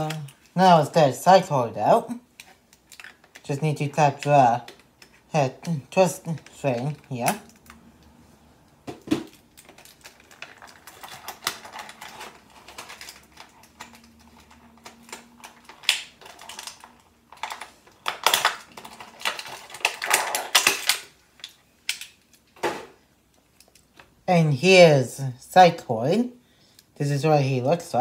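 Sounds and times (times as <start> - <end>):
plastic packaging clicks and crinkles: 2.3 - 3.5, 4.2 - 5.3, 6.2 - 24.2.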